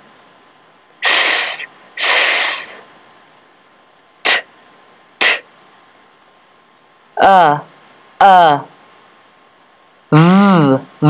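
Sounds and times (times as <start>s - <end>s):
person making letter sounds: 1.0s - 2.8s, 4.3s - 4.5s, 5.2s - 5.4s.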